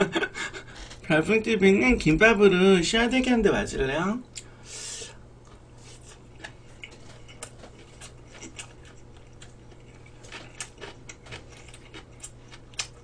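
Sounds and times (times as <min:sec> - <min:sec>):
low electrical hum: 0:00.0 - 0:13.0
close chewing smacks: 0:05.4 - 0:13.0.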